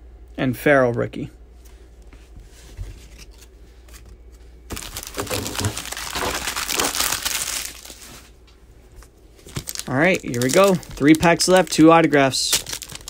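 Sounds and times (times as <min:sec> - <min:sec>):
foil wrapper crinkling: 0:04.7 - 0:08.4, 0:09.4 - 0:13.0.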